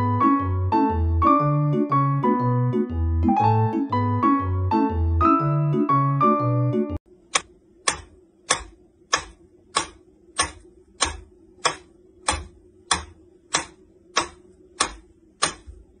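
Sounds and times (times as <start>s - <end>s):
mechanical metronome ticking: 7.3s - 15.8s.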